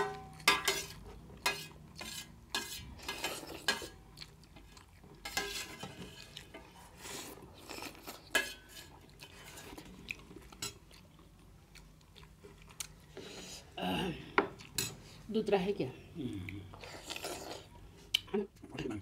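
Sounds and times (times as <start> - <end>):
metal spoon scraping a plate: 0.0 - 4.0, 5.2 - 9.8
soft chewing: 0.2 - 15.3, 16.0 - 19.0.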